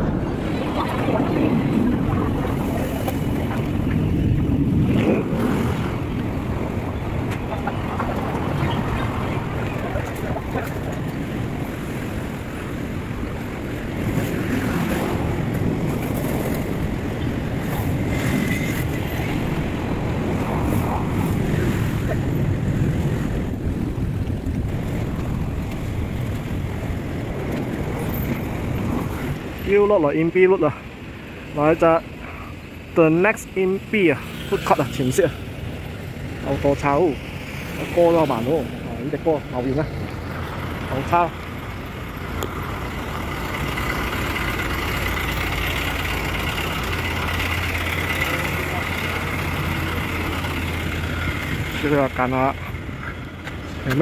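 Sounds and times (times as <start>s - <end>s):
wind buffeting microphone: 0.0s - 29.9s
road traffic rumble: 0.0s - 54.0s.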